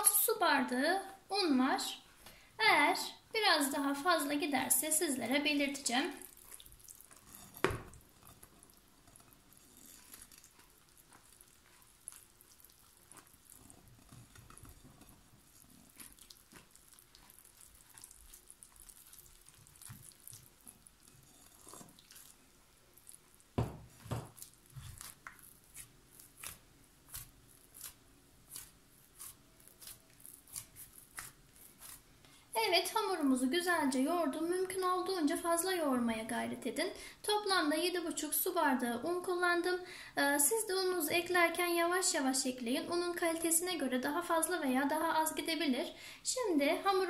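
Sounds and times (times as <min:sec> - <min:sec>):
dough squishing: 0:03.0 - 0:35.3
hands kneading dough: 0:03.6 - 0:33.3
thump on bowl: 0:23.6 - 0:24.4.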